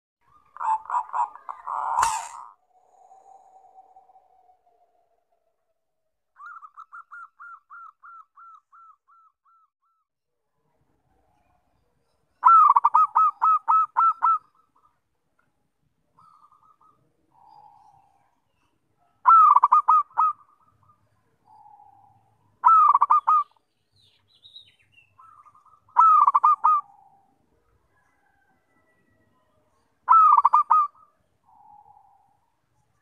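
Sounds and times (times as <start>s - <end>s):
dove cooing: 0.3s - 3.1s, 12.4s - 14.9s, 16.2s - 18.3s, 19.2s - 23.5s, 25.2s - 28.7s, 30.1s - 32.4s.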